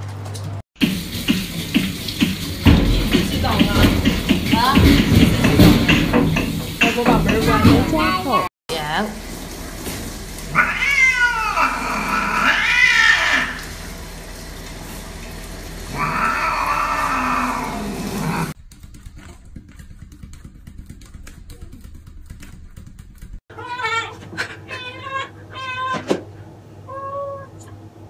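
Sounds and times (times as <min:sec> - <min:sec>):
shower head spraying water: 0:00.8 - 0:18.6
cats yowling and meowing: 0:10.5 - 0:13.7, 0:15.9 - 0:18.6, 0:23.5 - 0:26.2, 0:26.9 - 0:27.6.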